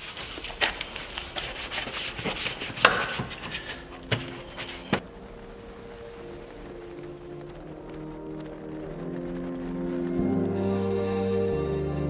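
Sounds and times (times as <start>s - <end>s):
brush scrubbing wet plastic: 0.0s - 5.0s.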